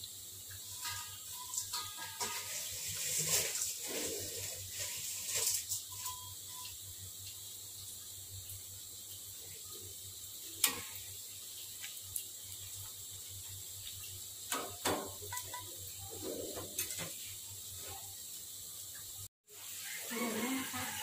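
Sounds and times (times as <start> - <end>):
faint steady hiss: 0.0 - 21.0
metal spatula scraping wok: 0.6 - 6.2.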